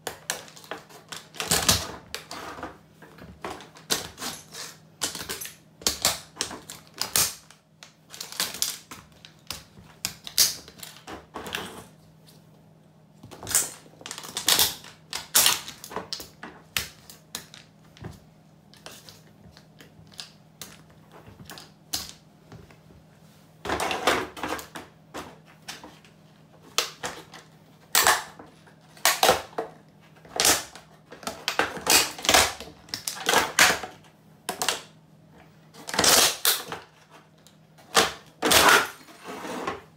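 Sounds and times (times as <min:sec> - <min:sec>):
plastic toy cracking under boots: 0:05.0 - 0:11.1, 0:13.3 - 0:17.7, 0:27.9 - 0:28.4, 0:29.0 - 0:29.6, 0:30.4 - 0:33.9.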